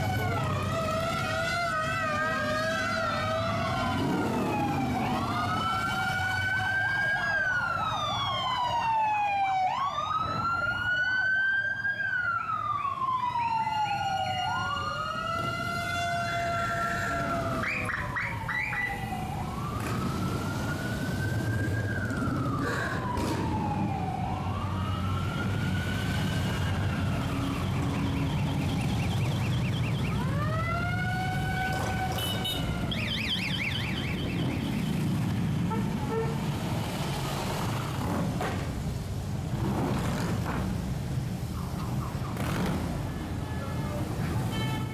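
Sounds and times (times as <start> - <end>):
siren wailing: 0.0 - 36.5
motorcycles rumbling past: 42.3 - 43.2.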